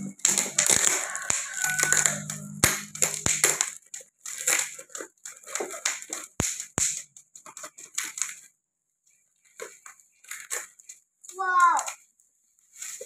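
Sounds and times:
sharp knocks: 0:00.0 - 0:03.7
knife slicing tape and cardboard: 0:00.3 - 0:03.7.

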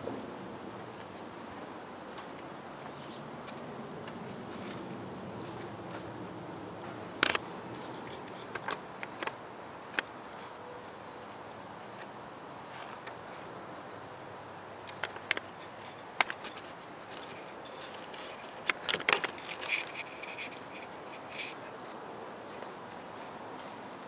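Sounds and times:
light clicking and rustling: 0:00.0 - 0:12.2, 0:14.4 - 0:23.8
sharp clicks: 0:05.8 - 0:11.7, 0:14.4 - 0:22.6.

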